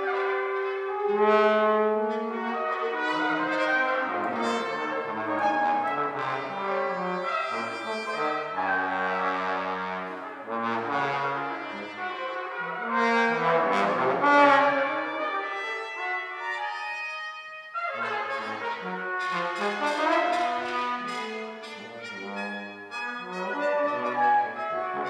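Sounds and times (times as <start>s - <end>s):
brass quartet playing: 0.0s - 25.0s.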